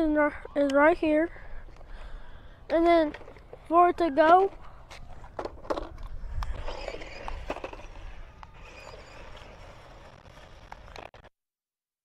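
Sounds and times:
plastic tyres rolling on pavement: 0:04.9 - 0:11.3
small electric motor whining: 0:06.3 - 0:11.1.

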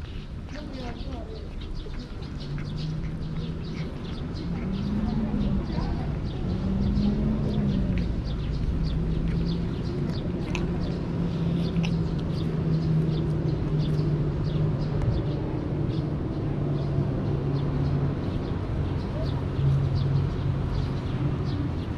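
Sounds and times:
small birds chirping: 0:00.0 - 0:21.9.

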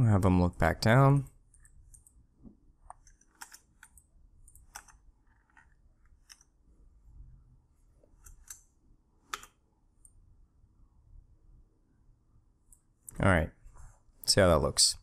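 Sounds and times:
computer mouse and keyboard clicks: 0:01.5 - 0:02.2, 0:02.8 - 0:06.6, 0:08.0 - 0:10.2.

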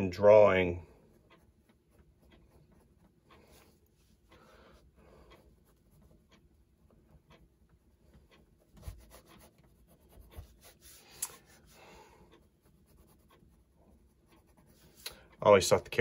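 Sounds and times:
pencil scratching on paper: 0:01.0 - 0:03.9, 0:05.4 - 0:06.4, 0:08.6 - 0:15.0.

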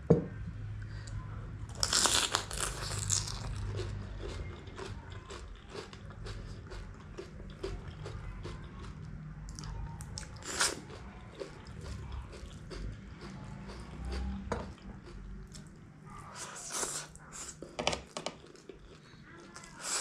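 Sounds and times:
low steady hum: 0:00.0 - 0:20.0
chewing with wet mouth smacks: 0:01.9 - 0:15.8.

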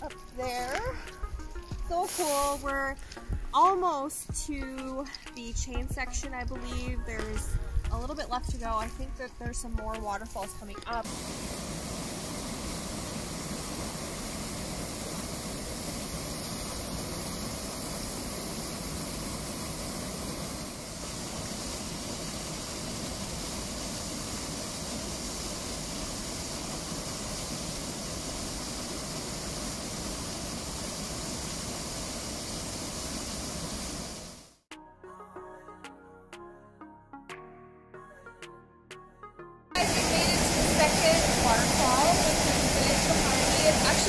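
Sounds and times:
small waterfall splashing: 0:10.9 - 0:34.6, 0:39.8 - 0:44.0.

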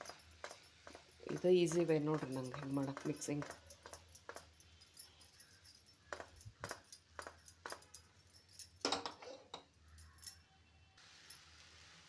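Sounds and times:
metal wok knocking and clattering: 0:00.0 - 0:04.6, 0:06.1 - 0:08.0, 0:08.8 - 0:09.7.

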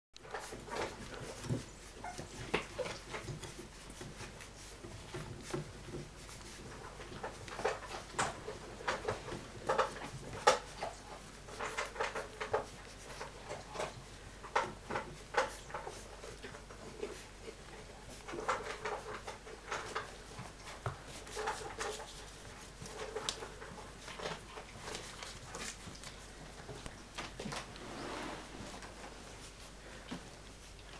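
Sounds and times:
puppies squeaking and whimpering: 0:01.3 - 0:03.5.

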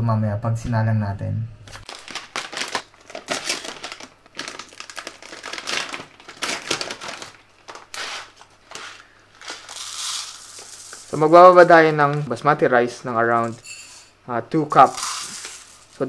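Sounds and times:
plastic pouch crinkling: 0:01.8 - 0:12.4, 0:14.8 - 0:16.0.

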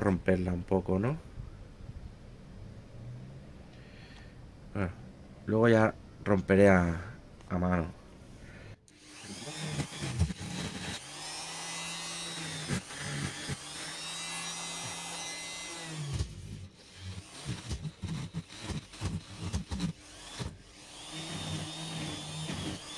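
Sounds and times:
grinder carving wood: 0:08.9 - 0:22.9
bumps and scrapes: 0:16.0 - 0:20.6.

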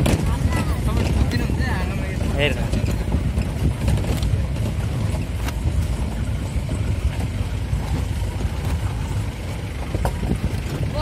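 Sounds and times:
vehicle engine and road rumble: 0:00.0 - 0:11.0
vehicle knocks and rattles: 0:00.0 - 0:11.0.

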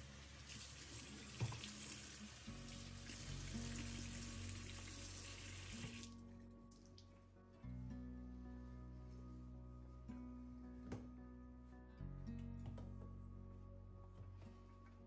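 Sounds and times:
soft guitar music: 0:00.0 - 0:15.0
water spraying into sink: 0:00.1 - 0:06.1.

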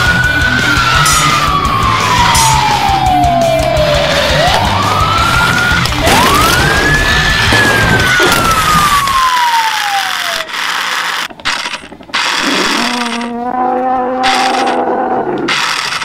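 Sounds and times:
background music: 0:00.0 - 0:09.3
police siren wailing: 0:00.0 - 0:10.6, 0:12.4 - 0:15.7.

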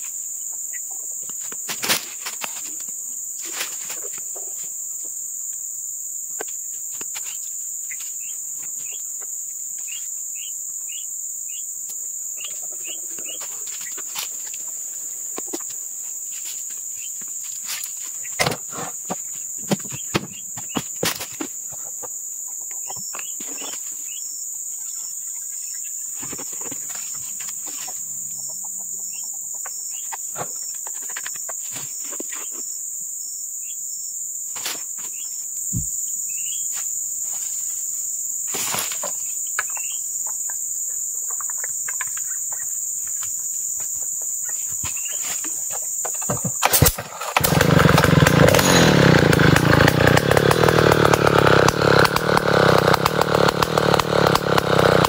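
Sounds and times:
high-pitched insect chorus: 0:00.0 - 0:55.0.

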